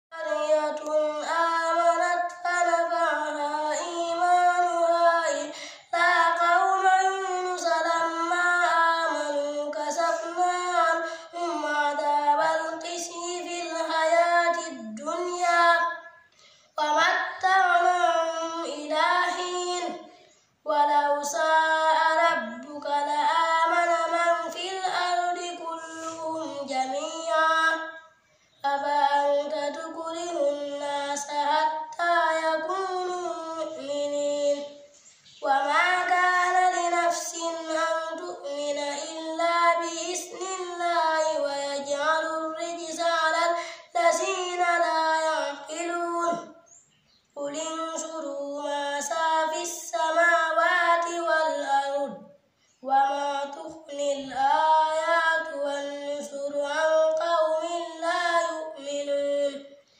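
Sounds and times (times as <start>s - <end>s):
child chanting melodic recitation: 0.1s - 59.9s.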